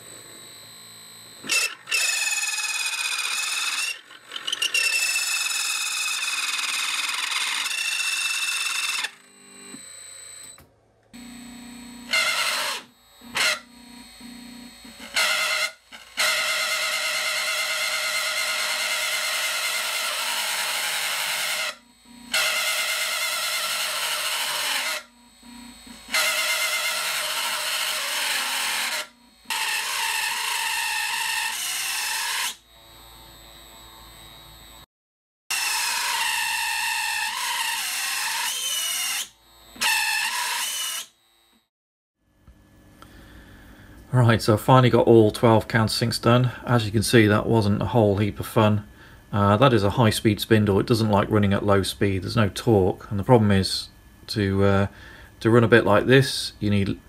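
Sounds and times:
cnc router spindle cutting metal: 0.0s - 10.5s, 11.2s - 34.4s
high-pitched ringing of cut: 0.0s - 34.9s, 35.5s - 41.7s.

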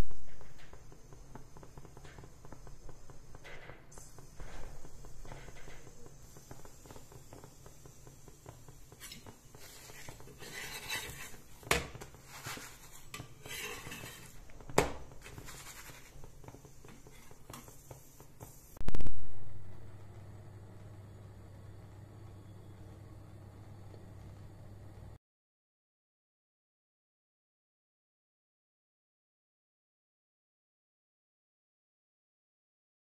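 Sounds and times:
metal spatula scraping a griddle: 8.9s - 14.5s, 15.2s - 17.7s.

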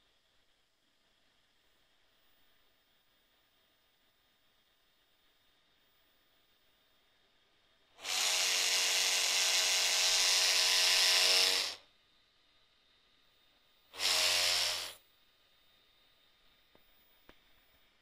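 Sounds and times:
gimbal motors buzzing: 8.0s - 11.8s, 14.0s - 15.0s.

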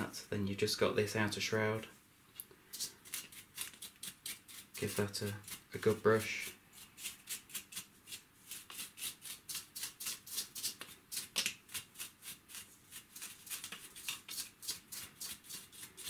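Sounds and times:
brush scrubbing plastic: 2.8s - 16.0s.

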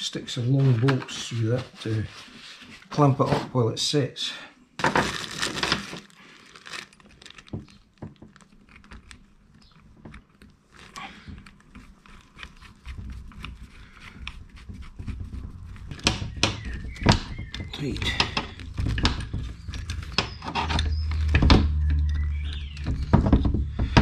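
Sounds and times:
low rumble of handling: 8.2s - 24.0s.

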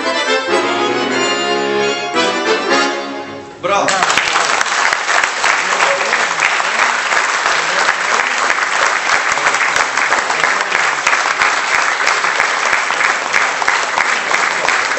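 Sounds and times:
audience applauding: 3.9s - 14.9s.

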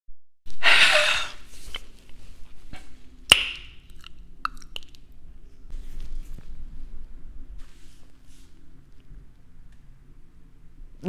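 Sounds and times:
faint low hum: 0.5s - 11.0s
clicks and lip smacks: 3.3s - 5.1s.

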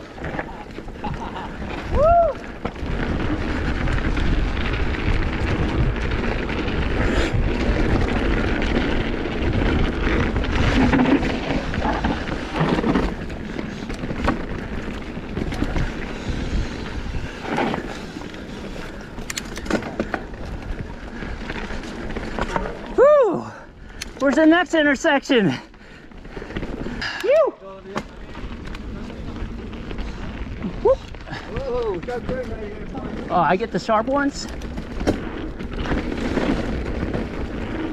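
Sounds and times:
bike knocks and rattles: 0.1s - 23.0s, 27.8s - 30.2s, 31.3s - 33.6s, 34.3s - 37.9s
wind buffeting microphone: 1.1s - 19.5s.

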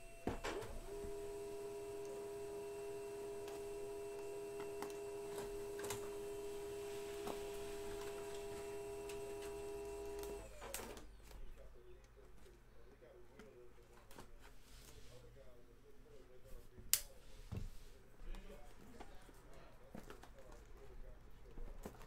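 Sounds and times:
electrical hum: 0.0s - 13.8s.

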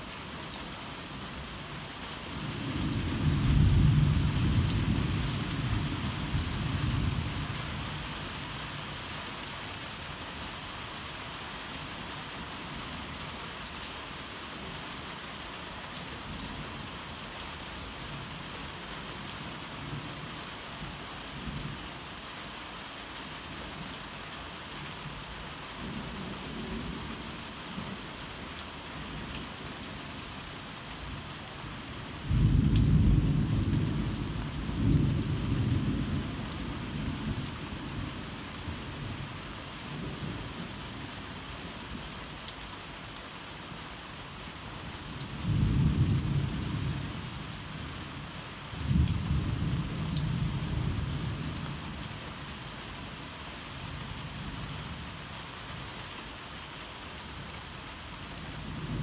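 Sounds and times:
heavy rain: 0.0s - 59.0s.

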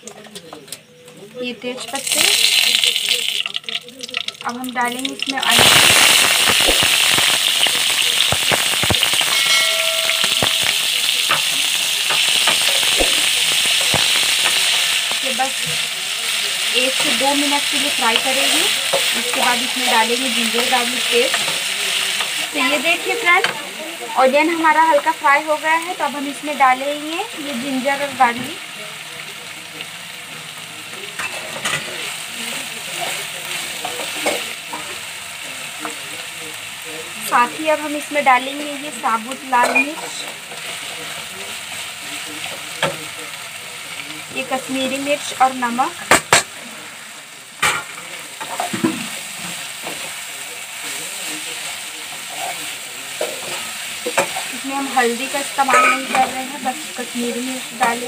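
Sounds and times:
onions sizzling in hot oil: 0.0s - 58.0s.

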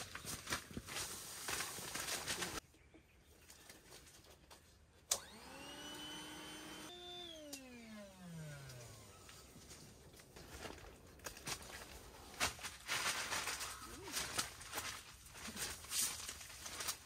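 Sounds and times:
electric air pump humming: 5.1s - 9.7s.

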